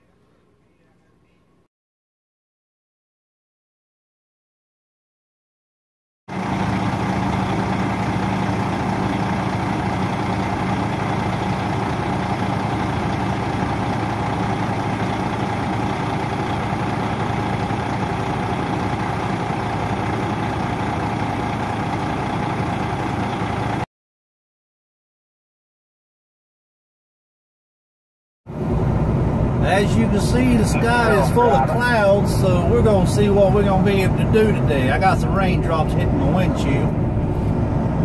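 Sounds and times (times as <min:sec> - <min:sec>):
diesel truck engine idling: 0:06.3 - 0:23.9, 0:28.5 - 0:38.0.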